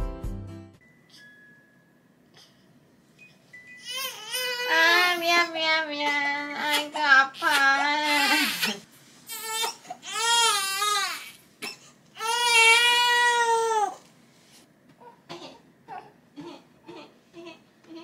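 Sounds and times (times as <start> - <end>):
baby crying: 3.8 - 5.5, 6.6 - 11.4, 12.2 - 14.0.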